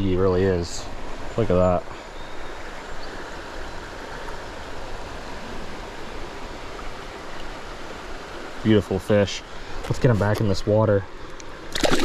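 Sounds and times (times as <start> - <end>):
water running over rocks: 3.1 - 12.0.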